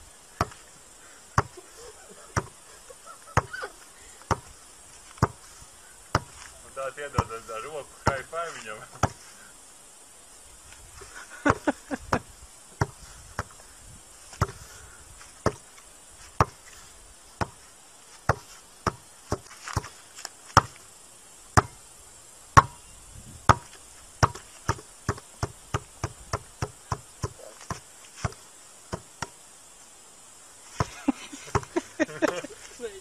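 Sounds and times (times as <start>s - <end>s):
ball bouncing: 2.4s - 2.6s, 4.3s - 4.5s, 5.2s - 5.4s, 6.1s - 6.4s, 12.8s - 13.5s, 21.6s - 21.8s, 22.6s - 22.8s, 23.5s - 29.4s, 30.8s - 32.4s.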